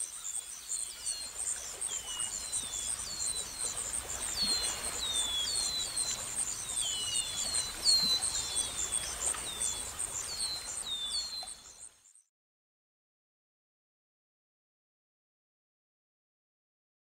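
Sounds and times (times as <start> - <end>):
insects chirping chorus: 0.0 - 12.2.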